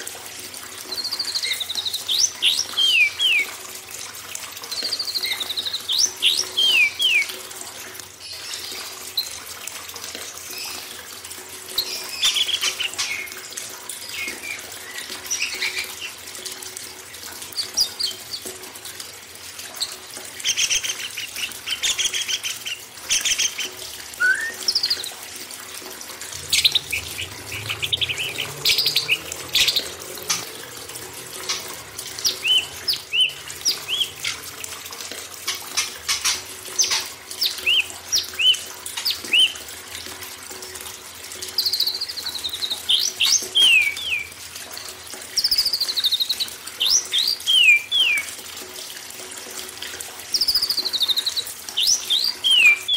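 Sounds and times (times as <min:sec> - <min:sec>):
flowing water hiss: 0:00.0 - 0:52.9
songbirds chirping and whistling: 0:04.9 - 0:07.3, 0:24.2 - 0:25.1, 0:32.2 - 0:34.4, 0:41.8 - 0:44.3, 0:46.9 - 0:48.3.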